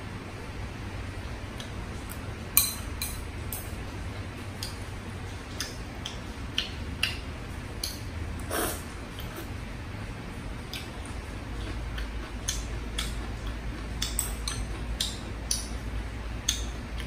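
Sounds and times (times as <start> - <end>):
low steady hum: 0.0 - 17.0
slurp of food: 8.5 - 9.5.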